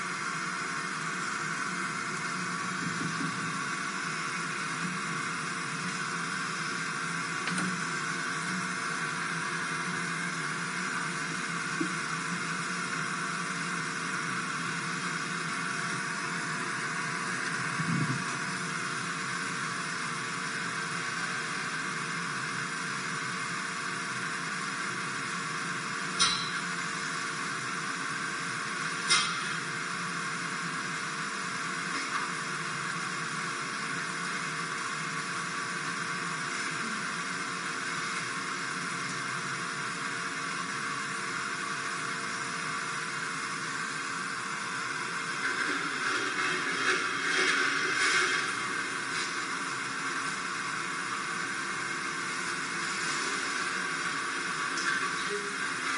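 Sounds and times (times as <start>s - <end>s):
steady hiss: 44.8s - 55.9s.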